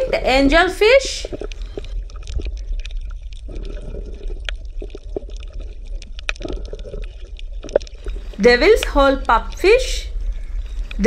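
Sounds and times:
steady low rumble: 0:00.0 - 0:11.0
water gurgling and bubbling: 0:00.0 - 0:11.0
small pops and clicks: 0:01.2 - 0:09.7.

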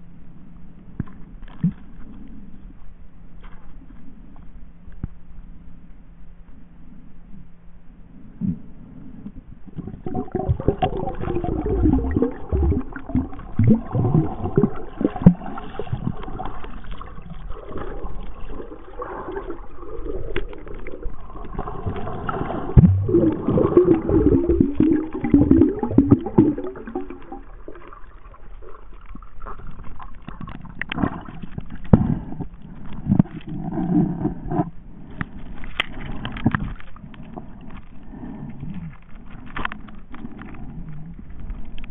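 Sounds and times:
muffled underwater gurgling: 0:08.2 - 0:41.9.

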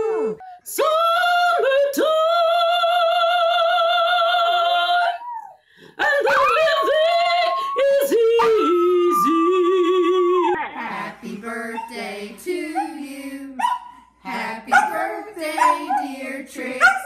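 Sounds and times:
dog howling: 0:06.2 - 0:10.8.

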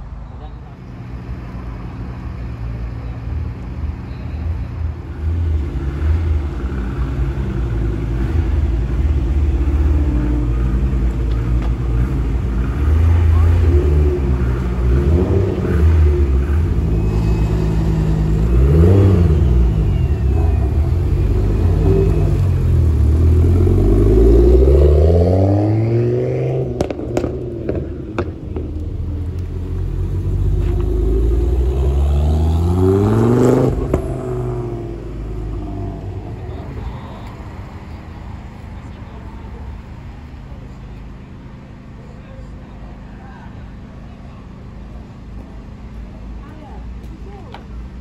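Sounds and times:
car engine revving: 0:05.0 - 0:42.0
sharp cracks: 0:26.8 - 0:29.5.

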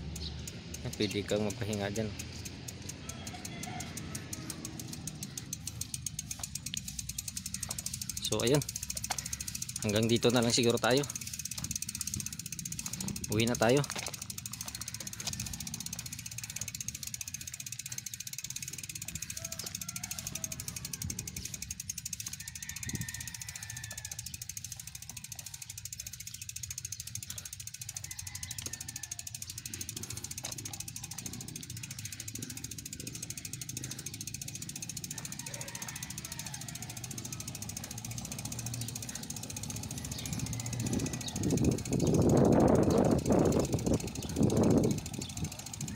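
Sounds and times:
bicycle freewheel ticking: 0:00.0 - 0:45.9
tyres rumbling on road: 0:37.0 - 0:45.7.

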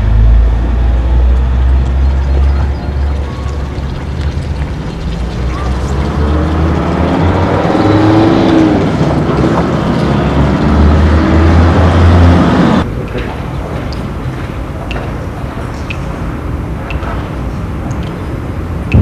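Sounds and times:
vehicle engine droning: 0:00.0 - 0:12.9, 0:18.7 - 0:19.0.

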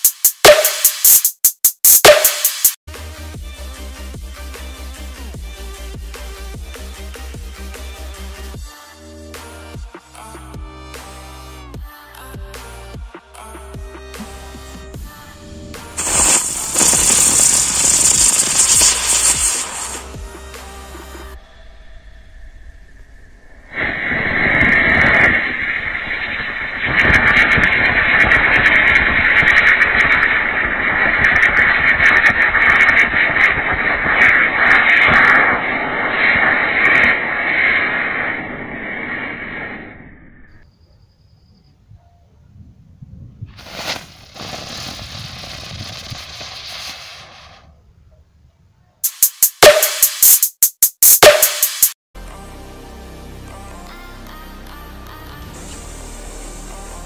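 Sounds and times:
ground firework hissing and crackling: 0:15.8 - 0:20.1, 0:23.7 - 0:39.8, 0:43.6 - 0:47.7.

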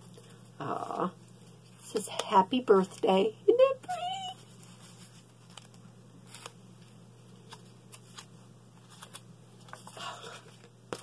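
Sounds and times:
low electrical hum: 0:00.0 - 0:11.0
paper card clicks and rustles: 0:03.9 - 0:11.0.

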